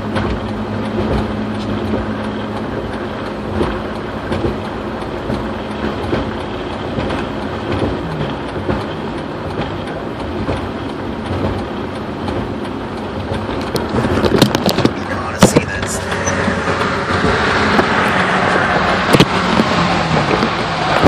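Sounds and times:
low engine hum: 0.0 - 21.0
road and tyre noise: 0.0 - 21.0.

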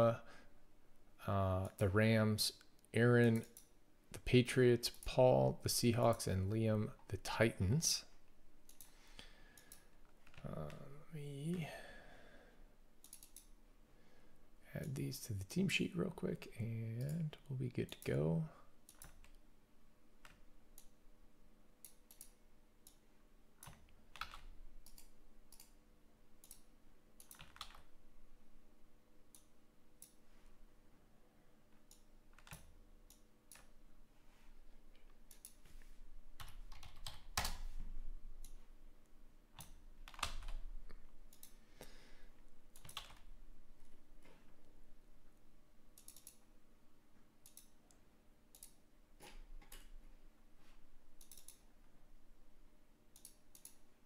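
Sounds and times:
computer keyboard typing: 18.9 - 19.4, 23.6 - 25.8, 27.2 - 27.9, 31.9 - 32.7, 36.4 - 37.6, 39.6 - 40.7, 42.7 - 43.3, 46.0 - 46.4.

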